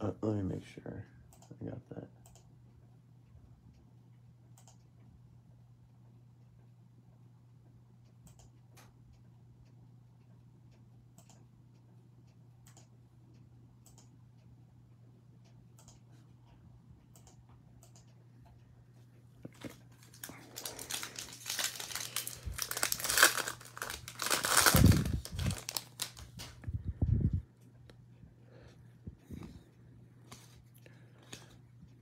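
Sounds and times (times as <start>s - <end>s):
wrapper tearing and crinkling: 20.0s - 26.5s.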